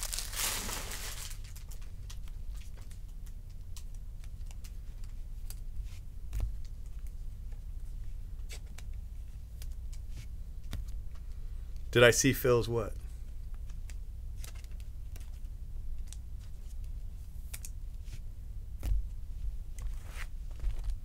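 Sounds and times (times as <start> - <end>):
foil wrapper crinkling: 0.0 - 3.0
low steady hum: 0.0 - 21.0.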